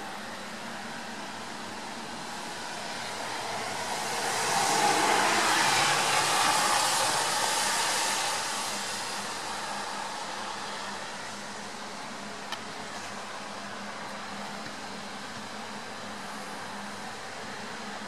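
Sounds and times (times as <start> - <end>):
vehicle tyre hiss on wet street: 0.2 - 14.0.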